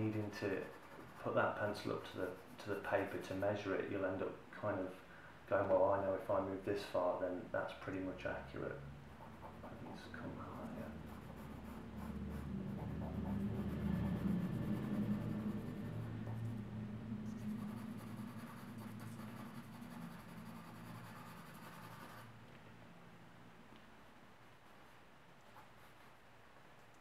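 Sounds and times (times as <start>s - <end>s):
pencil scratching on paper: 0.0s - 3.7s, 9.2s - 16.7s, 17.3s - 22.3s
low steady hum: 0.0s - 27.0s.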